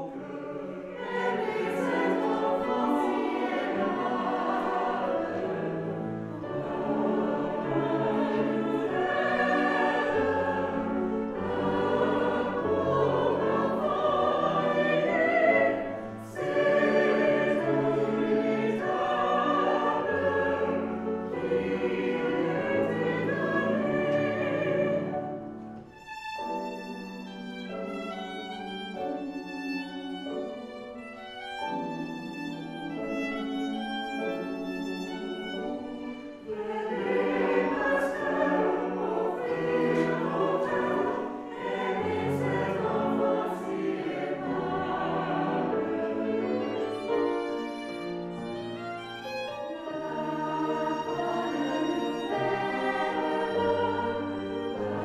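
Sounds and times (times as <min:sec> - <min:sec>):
mixed choir singing: 0:00.0 - 0:55.0
solo violin melody: 0:00.0 - 0:55.0.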